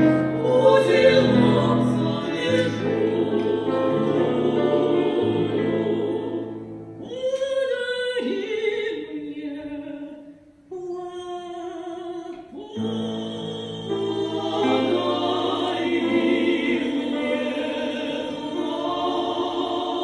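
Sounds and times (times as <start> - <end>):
guitar and piano accompaniment: 0.0 - 7.0
female vocal trio singing: 0.0 - 20.0.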